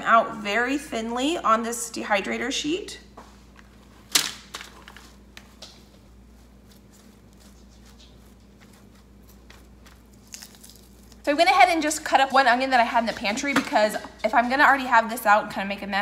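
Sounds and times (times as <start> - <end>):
sliced onion rustling by hand: 4.8 - 11.3.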